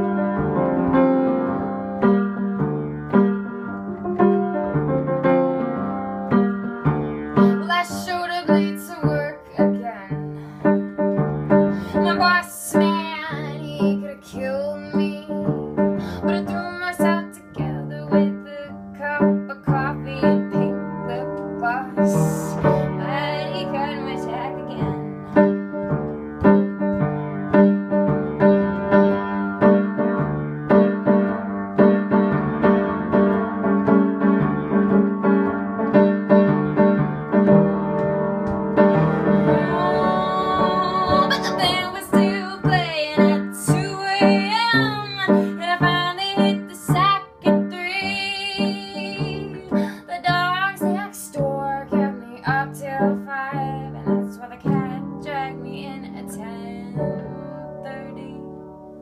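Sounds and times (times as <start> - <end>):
piano chords: 0.0 - 59.0
woman singing: 7.4 - 10.3, 11.8 - 25.1, 38.9 - 58.4.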